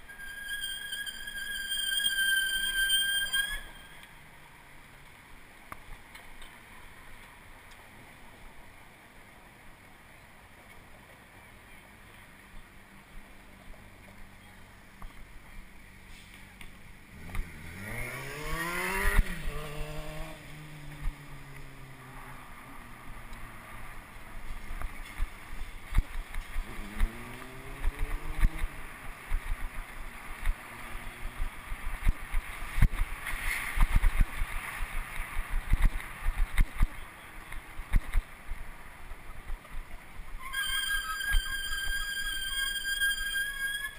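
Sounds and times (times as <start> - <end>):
high squeal: 0.0 - 4.3, 40.4 - 43.9
city traffic: 0.0 - 43.9
engine accelerating: 17.0 - 22.9, 26.5 - 31.4.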